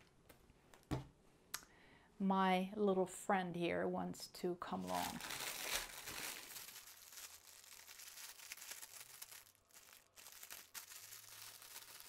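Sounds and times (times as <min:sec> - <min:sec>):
plastic bag crinkling: 0:04.8 - 0:12.0
small bags shifting: 0:04.8 - 0:12.0.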